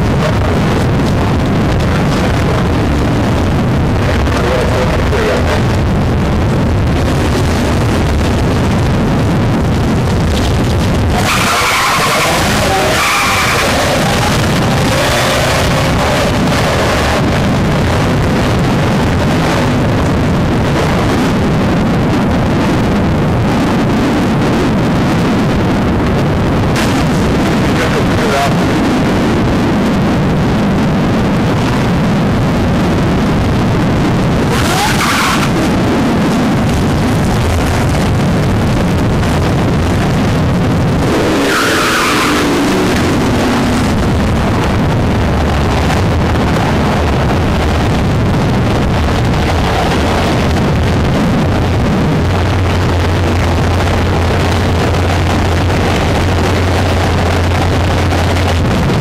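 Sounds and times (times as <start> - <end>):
car engine running: 0.0 - 59.0
tyre squeal: 11.2 - 14.4.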